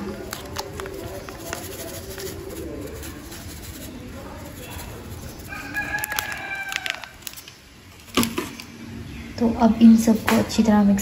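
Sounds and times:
spice packet crinkling: 0:00.0 - 0:03.7, 0:04.6 - 0:07.6.

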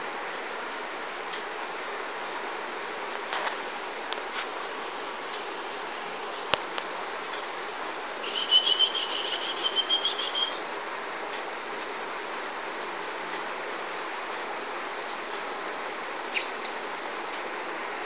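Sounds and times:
steady background hiss: 0:00.0 - 0:18.0
squirrel trilling call: 0:08.2 - 0:10.7.

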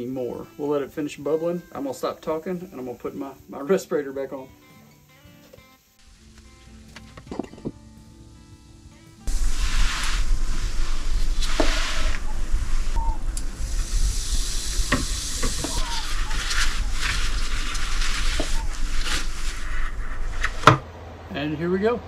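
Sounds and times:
hissing and crackling: 0:05.1 - 0:20.8
low rumble: 0:08.2 - 0:21.6
paper towel rustling: 0:09.3 - 0:13.1, 0:14.4 - 0:20.7.

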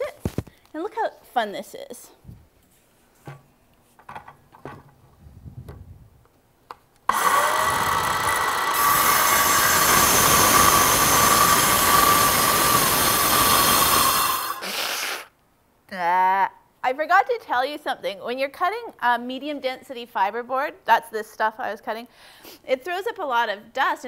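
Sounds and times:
circular saw cutting board: 0:07.1 - 0:15.3.

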